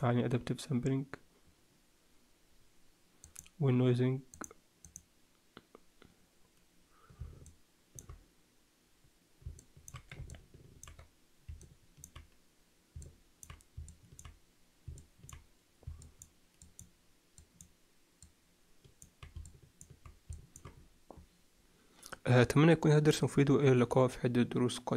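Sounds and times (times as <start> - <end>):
computer mouse clicking: 3.2 - 3.6, 4.3 - 5.1, 7.1 - 8.2, 9.4 - 12.4, 13.0 - 20.9.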